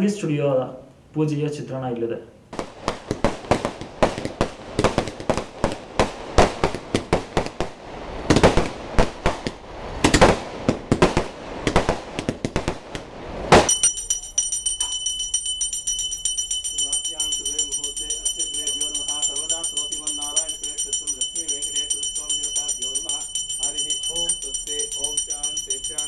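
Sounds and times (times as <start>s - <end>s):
fireworks fountain hissing: 2.6s - 13.8s
firecrackers banging: 2.6s - 26.0s
metal hand bell ringing: 13.7s - 26.0s.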